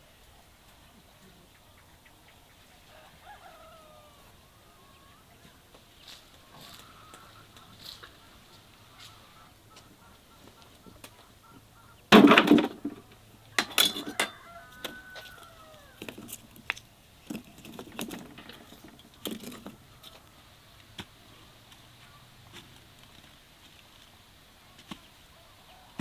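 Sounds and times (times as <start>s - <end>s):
fowl squawking: 6.1s - 12.2s.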